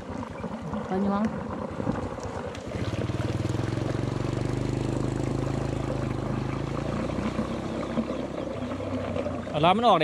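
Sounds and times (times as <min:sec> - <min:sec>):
small engine running: 0:02.6 - 0:10.0.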